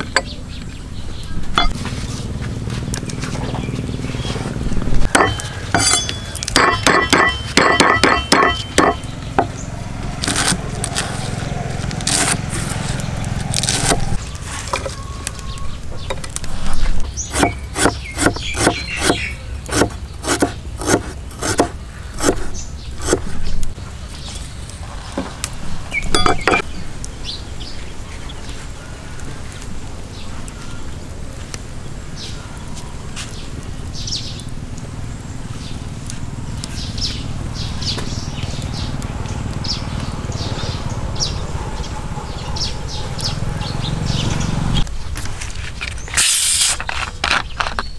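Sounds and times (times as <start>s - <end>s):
cleaver chopping on wooden block: 5.1s - 9.5s, 17.3s - 23.3s.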